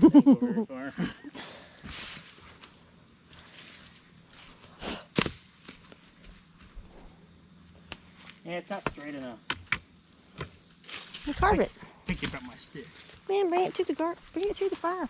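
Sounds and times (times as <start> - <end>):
insect chorus: 0.0 - 15.0
footsteps on forest floor: 1.8 - 7.1, 10.4 - 15.0.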